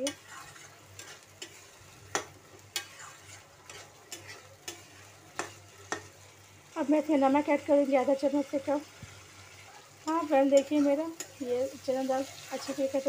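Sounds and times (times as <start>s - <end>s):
spatula scraping and knocking pan: 0.0s - 6.3s
food sizzling in a pan: 0.0s - 13.0s.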